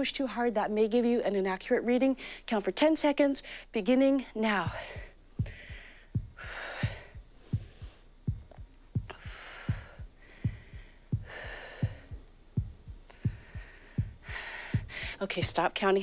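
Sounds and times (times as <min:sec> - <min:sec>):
heartbeat double thumps: 0:04.6 - 0:15.8.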